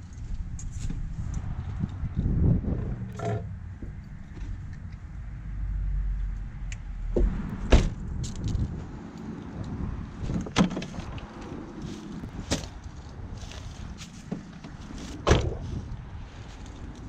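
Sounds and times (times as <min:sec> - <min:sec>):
car door slamming: 0:07.2 - 0:08.0, 0:15.2 - 0:15.6
car door latch clunk: 0:15.2 - 0:15.6.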